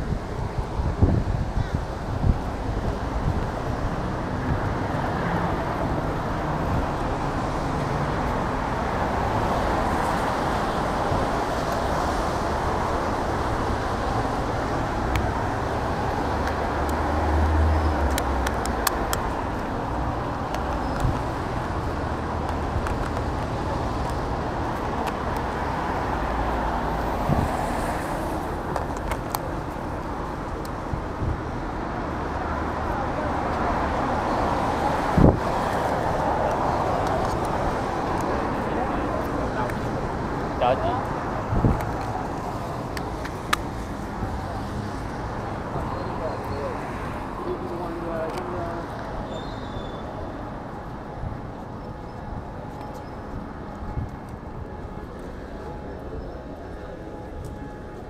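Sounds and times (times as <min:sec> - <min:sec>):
cars passing: 0:00.0 - 0:58.0
vehicle going by: 0:03.9 - 0:30.5.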